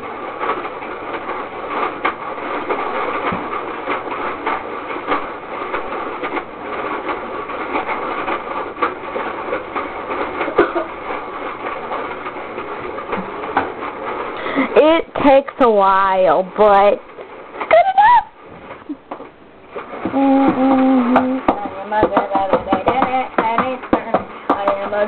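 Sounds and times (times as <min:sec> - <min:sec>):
toy ice cream maker churning: 0:19.8 - 0:25.0.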